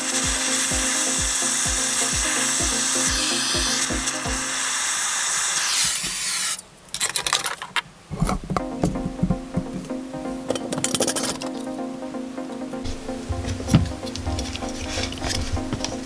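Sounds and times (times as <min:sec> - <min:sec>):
music with a steady beat: 0:00.0 - 0:04.6, 0:08.6 - 0:16.0
gas torch hissing: 0:00.0 - 0:06.6.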